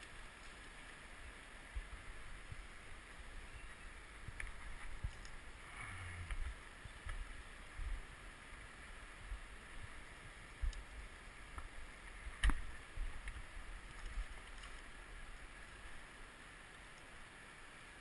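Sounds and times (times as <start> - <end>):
river flowing: 0.0 - 18.0
low rumbles on microphone: 1.7 - 8.1.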